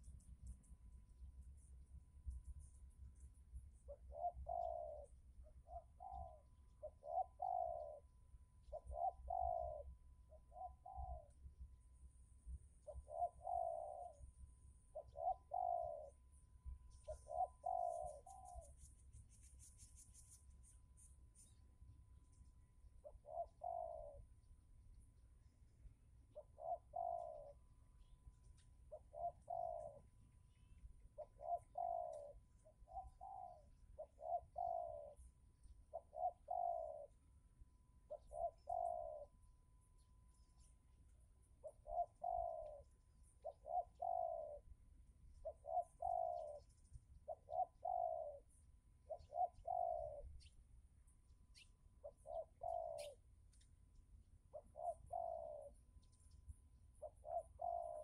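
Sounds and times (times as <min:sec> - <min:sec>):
dove cooing: 0:03.8 - 0:11.5, 0:12.8 - 0:19.1, 0:23.0 - 0:24.5, 0:26.3 - 0:28.2, 0:28.8 - 0:37.3, 0:38.0 - 0:39.4, 0:41.5 - 0:50.5, 0:51.5 - 0:53.2, 0:54.5 - 0:55.8, 0:56.9 - 0:58.0.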